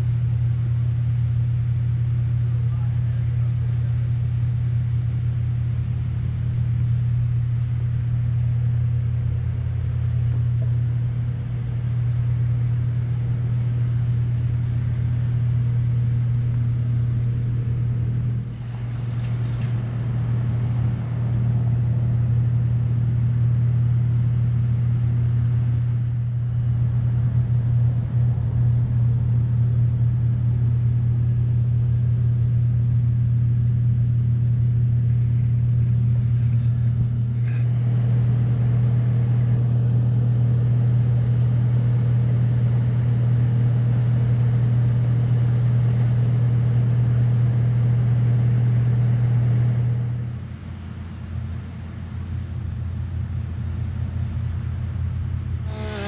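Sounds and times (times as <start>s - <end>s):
motor droning: 0.0s - 56.0s
even hiss: 55.6s - 56.0s.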